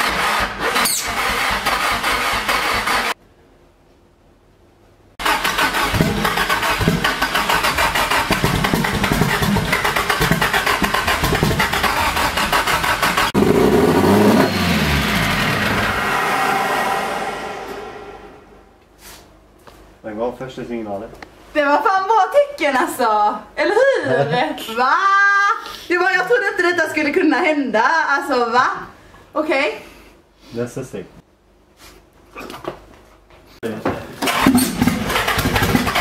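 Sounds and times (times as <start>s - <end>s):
engine cranking on starter: 0.0s - 3.2s, 5.2s - 16.4s, 34.1s - 36.0s
engine revving: 0.0s - 3.2s, 5.2s - 18.8s, 34.2s - 36.0s.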